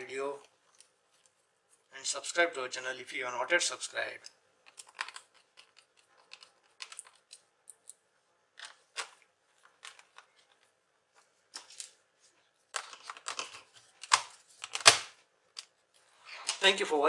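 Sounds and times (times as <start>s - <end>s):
hands handling plastic laptop: 4.6s - 16.6s.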